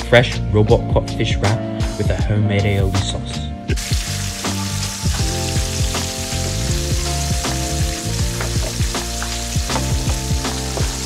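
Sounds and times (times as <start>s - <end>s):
fish frying in hot oil: 3.8s - 11.0s.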